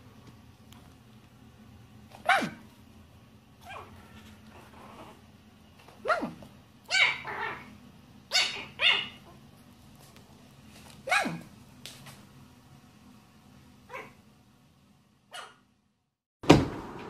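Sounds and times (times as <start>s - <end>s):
puppy yapping: 2.2s - 2.6s, 3.6s - 4.0s, 6.0s - 9.4s, 11.0s - 11.5s, 13.9s - 14.2s, 15.3s - 15.6s.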